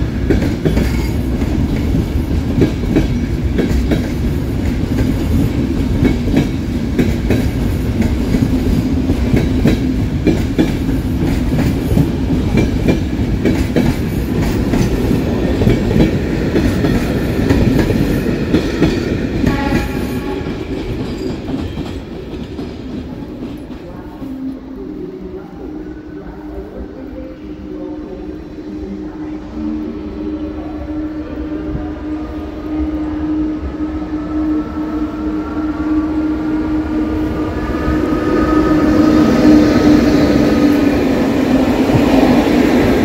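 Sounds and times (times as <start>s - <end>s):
train wheels clattering: 0.2s - 23.8s.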